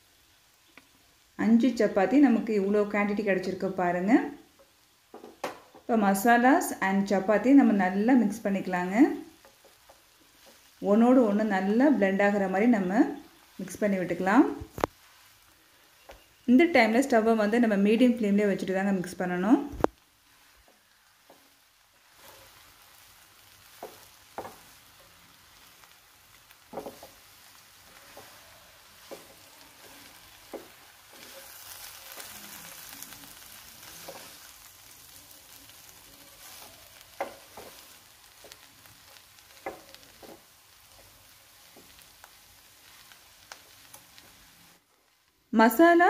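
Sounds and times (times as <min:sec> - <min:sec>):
food sizzling in a pan: 0:00.0 - 0:46.0
spatula scraping a pan: 0:20.3 - 0:44.6.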